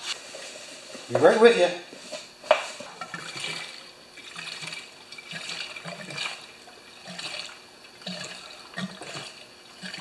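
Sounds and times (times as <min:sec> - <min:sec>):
fuel glugging into a tank: 0:03.0 - 0:10.0.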